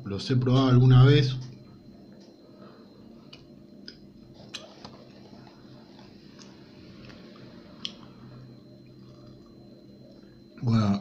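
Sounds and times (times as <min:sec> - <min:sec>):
coffee maker humming: 0:00.0 - 0:11.0.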